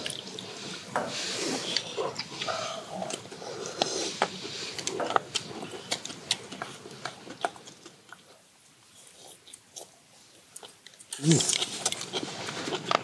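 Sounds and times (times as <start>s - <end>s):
people chewing: 0.0s - 13.0s.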